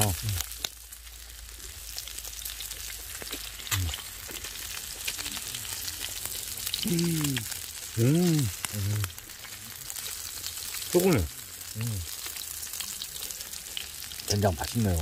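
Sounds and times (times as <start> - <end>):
meat sizzling in a frying pan: 0.0 - 15.0
man murmuring: 6.8 - 9.1, 11.0 - 12.1.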